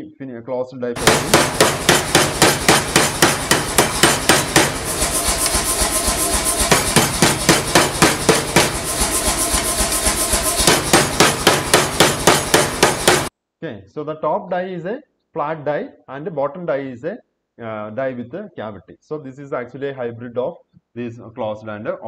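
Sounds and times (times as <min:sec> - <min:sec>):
hammer striking hot metal on anvil: 0:01.0 - 0:13.3.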